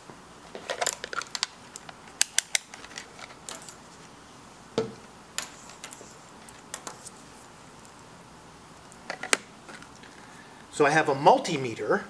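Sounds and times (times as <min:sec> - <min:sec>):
dull knock on a tabletop: 0:04.8 - 0:05.0.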